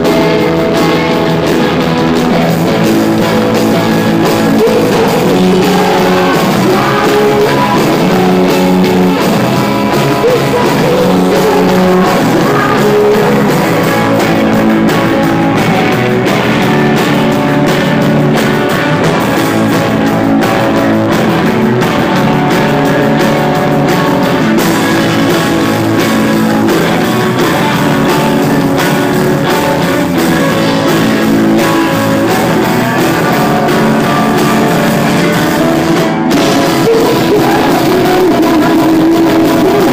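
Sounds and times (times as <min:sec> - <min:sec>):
bass guitar: 0:00.0 - 0:39.9
drum kit: 0:00.0 - 0:39.9
electric guitars: 0:00.0 - 0:39.9
person singing: 0:02.3 - 0:39.9.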